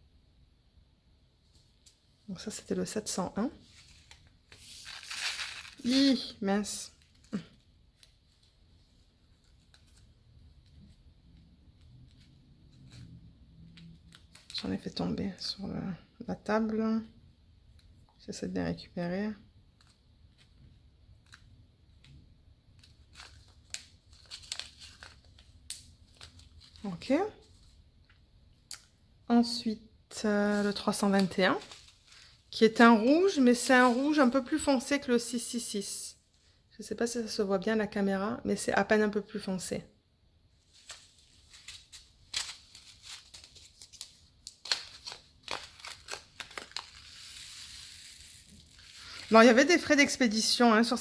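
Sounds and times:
plastic bags crinkling and clicking: 40.7s - 47.2s.

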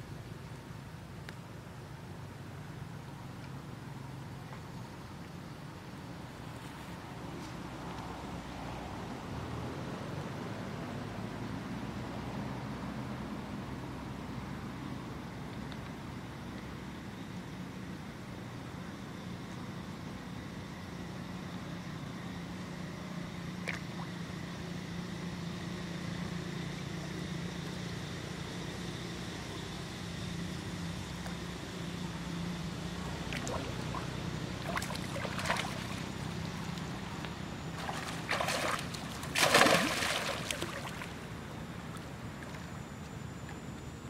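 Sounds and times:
steady low hum: 0.0s - 44.0s
monkeys splashing in water: 33.3s - 36.8s, 37.7s - 41.2s.

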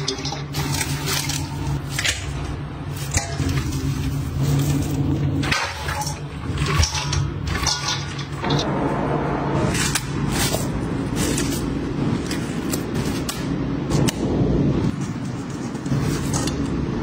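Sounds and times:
food clattering in bowls and pan: 0.0s - 8.7s
steady low hum: 0.0s - 17.0s.

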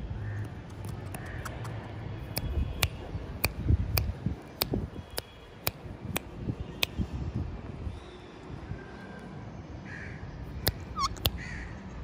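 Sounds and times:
sharp clicks: 0.4s - 7.0s.

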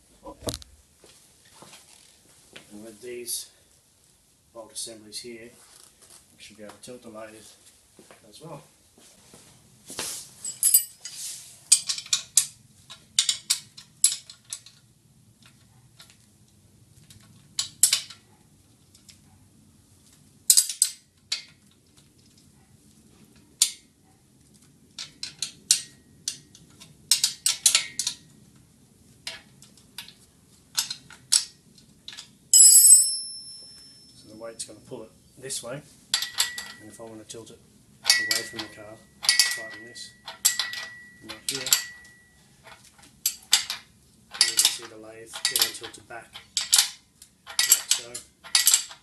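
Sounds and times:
ringing metal clink: 10.5s - 11.0s, 32.5s - 34.4s, 36.2s - 37.0s, 38.0s - 42.5s
spanner clicking on nuts: 11.7s - 14.8s, 17.6s - 18.2s, 20.5s - 21.7s, 25.0s - 28.2s, 36.1s - 36.9s, 38.0s - 49.0s.

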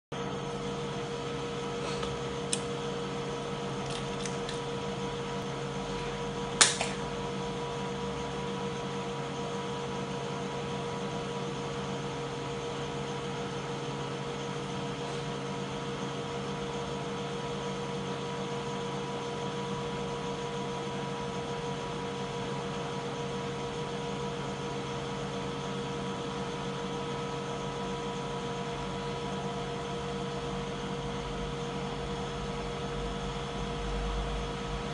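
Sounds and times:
sharp click: 6.6s - 7.0s.

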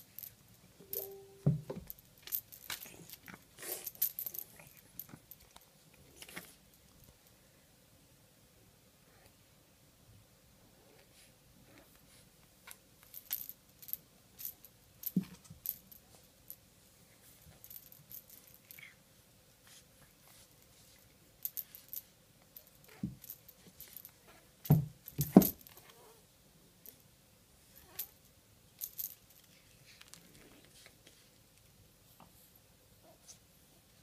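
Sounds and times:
small bell jingling: 0.8s - 3.2s.

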